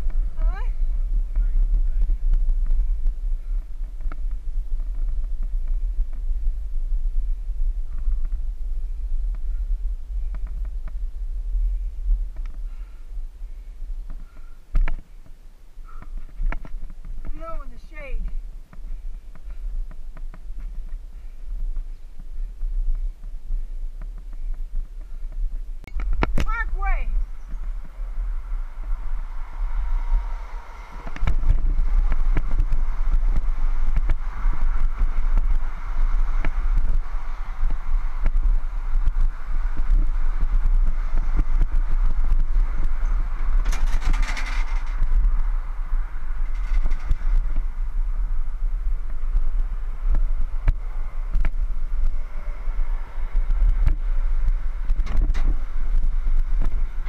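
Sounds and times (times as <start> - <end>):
small wheels rolling on pavement: 0.0 - 57.0
wind buffeting microphone: 0.0 - 57.0
wheels clattering on wooden bridge: 40.5 - 45.6
sharp knocks and rattles: 43.4 - 45.3.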